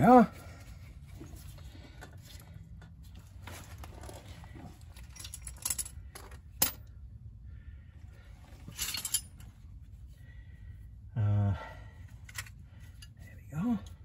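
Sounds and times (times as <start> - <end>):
metal tools clinking: 3.7 - 6.9, 8.6 - 9.6.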